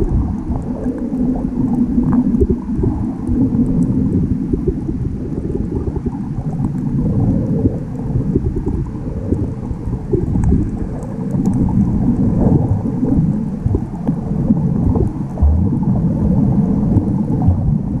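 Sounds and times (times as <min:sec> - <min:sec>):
underwater rumble and sloshing: 0:00.0 - 0:18.0
faint ticks: 0:00.2 - 0:04.0, 0:06.4 - 0:14.2.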